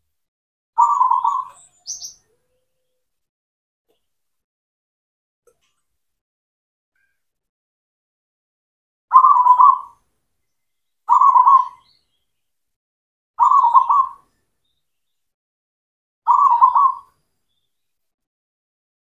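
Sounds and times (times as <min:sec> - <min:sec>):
dove cooing: 0:00.8 - 0:01.6, 0:09.1 - 0:10.0, 0:11.1 - 0:11.8, 0:13.4 - 0:14.2, 0:16.3 - 0:17.1.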